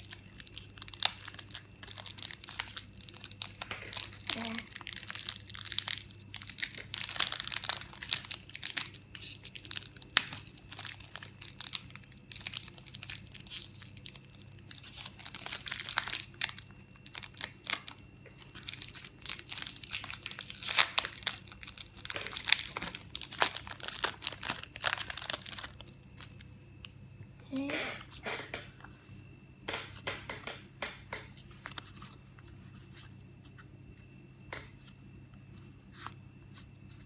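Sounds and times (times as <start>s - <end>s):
foil wrapper crinkling and tearing: 0.0s - 26.4s.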